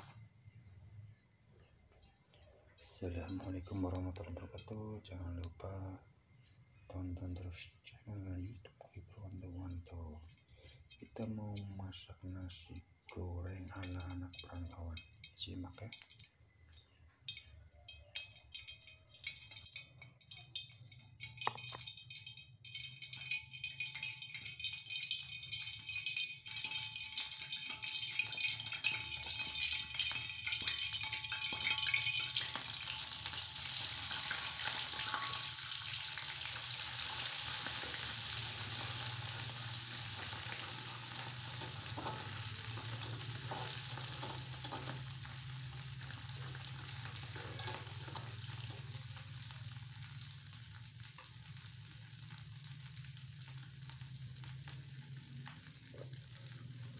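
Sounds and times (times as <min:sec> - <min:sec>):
food sizzling in hot oil: 0:00.0 - 0:01.8, 0:02.8 - 0:56.9
spatula stirring in wok: 0:18.1 - 0:50.0.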